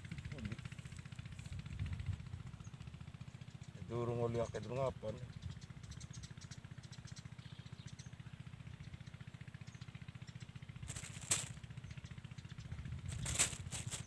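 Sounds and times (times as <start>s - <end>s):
small engine puttering: 0.0s - 14.0s
crackly rustle: 10.8s - 11.7s, 13.1s - 14.0s.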